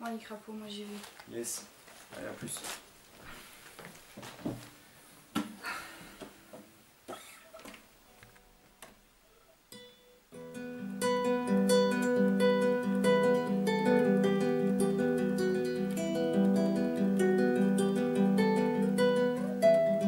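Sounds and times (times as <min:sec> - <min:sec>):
soft knocks and rustles: 0:00.8 - 0:04.8
fingerpicked classical guitar: 0:09.7 - 0:20.0.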